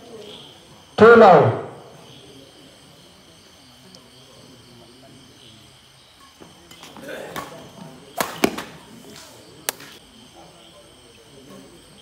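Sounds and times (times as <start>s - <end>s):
spectators' voices: 0.0s - 12.0s
rackets striking shuttlecock: 6.8s - 10.0s.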